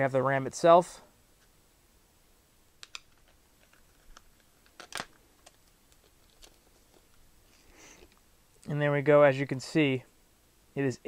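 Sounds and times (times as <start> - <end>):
plastic blister pack crackling: 2.8 - 7.2.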